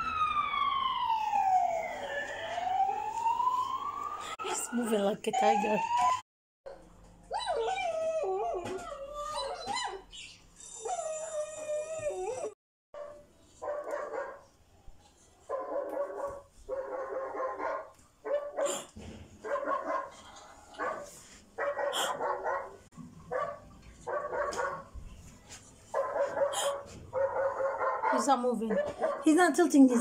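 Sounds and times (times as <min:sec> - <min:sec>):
recorded dog barking: 0:13.0 - 0:14.5, 0:15.4 - 0:24.9, 0:25.9 - 0:29.5.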